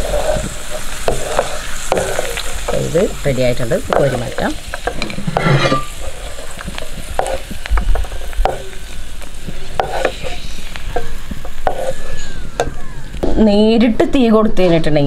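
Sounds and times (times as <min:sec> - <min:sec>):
soft sizzle of hot oil: 0:00.0 - 0:13.2
metal spoon scraping a bowl: 0:04.8 - 0:08.8, 0:09.6 - 0:12.4.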